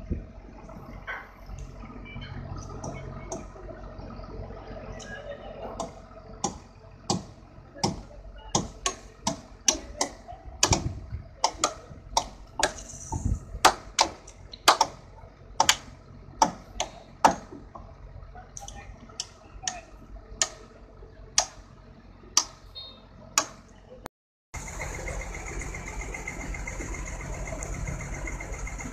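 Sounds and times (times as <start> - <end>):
hammers striking nails into wood: 5.8 - 8.0, 8.6 - 12.8, 13.6 - 15.0, 15.6 - 15.8, 16.4 - 17.5.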